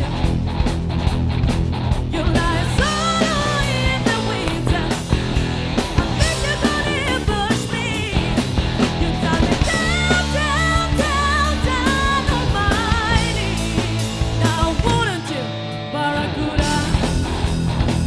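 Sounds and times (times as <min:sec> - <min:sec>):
drums: 0:00.0 - 0:18.0
electric guitars: 0:00.0 - 0:18.0
woman singing lead: 0:02.0 - 0:17.3.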